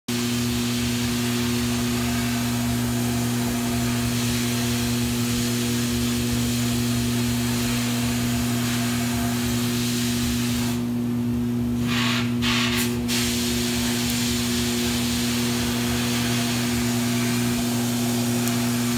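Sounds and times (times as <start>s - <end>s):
motor hum: 0.3s - 11.8s, 13.4s - 18.9s
abrasive blasting hiss: 11.8s - 18.9s.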